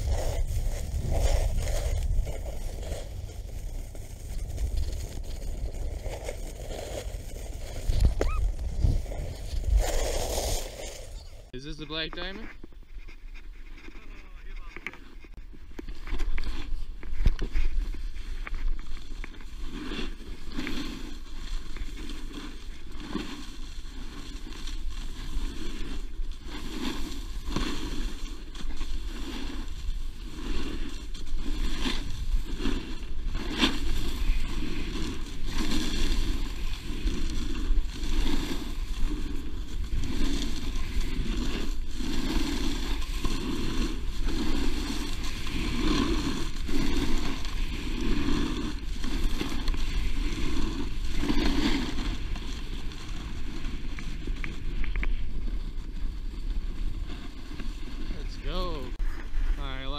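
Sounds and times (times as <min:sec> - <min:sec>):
snowboard scraping over snow: 0:00.0 - 0:59.9
wind rumbling on microphone: 0:00.0 - 0:59.9.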